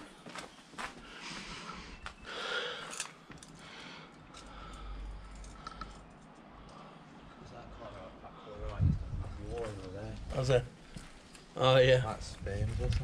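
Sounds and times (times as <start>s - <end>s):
small clicks and rustling: 2.8s - 6.8s.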